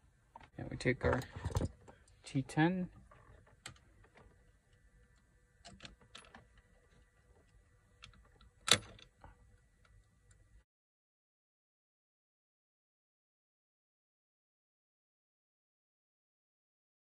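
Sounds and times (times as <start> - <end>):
faint steady hum: 0.0 - 10.7.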